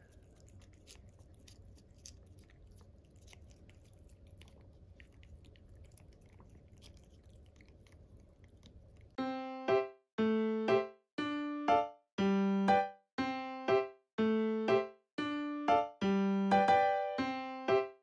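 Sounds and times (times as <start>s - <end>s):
cat licking and smacking: 0.0s - 9.2s.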